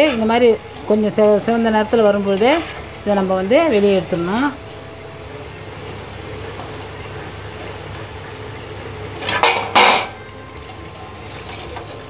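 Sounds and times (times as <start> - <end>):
oil sizzling: 0.0 - 12.0
metal clatters and scrapes: 9.1 - 10.2.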